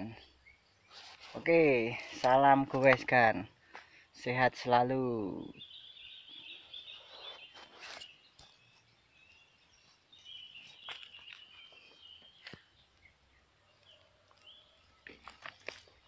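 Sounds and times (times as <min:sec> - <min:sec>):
bird calls chirping: 0:05.2 - 0:16.0
footsteps crunching on stones: 0:10.6 - 0:12.7, 0:14.3 - 0:16.0.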